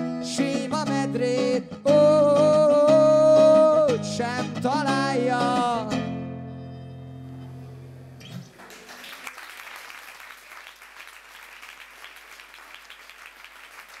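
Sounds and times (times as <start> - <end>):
acoustic guitar chord ringing: 0.0 - 8.3
audience applauding: 8.3 - 14.0.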